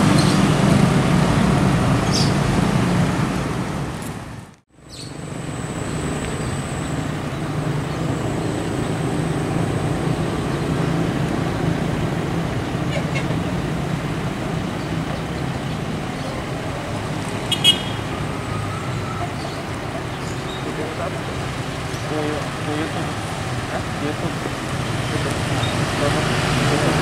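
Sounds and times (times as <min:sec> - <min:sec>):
motorcycles passing: 0:00.0 - 0:27.0
traffic passing: 0:00.0 - 0:27.0
diesel engine idling: 0:12.1 - 0:27.0.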